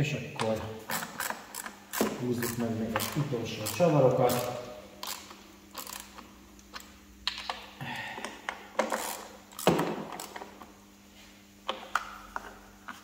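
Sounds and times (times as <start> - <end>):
hand ratchet clicking: 0.9 - 7.4, 8.8 - 10.5.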